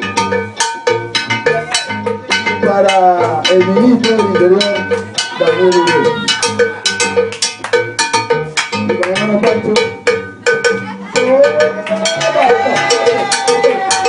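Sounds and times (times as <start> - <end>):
cowbell keeping the beat: 0.0 - 14.0
latin dance music: 0.0 - 14.0
person singing: 1.3 - 6.6, 10.8 - 14.0.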